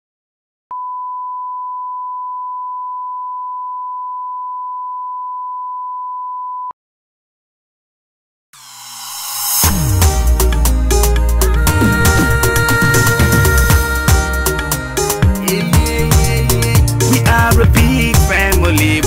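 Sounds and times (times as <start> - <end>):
steady test tone beep: 0.7 - 6.7.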